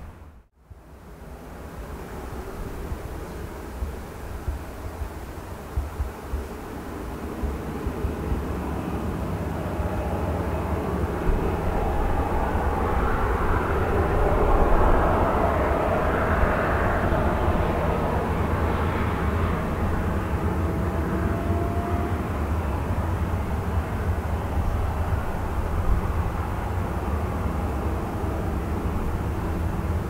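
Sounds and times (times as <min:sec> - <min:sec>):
jet engines whining: 0:06.5 - 0:30.0.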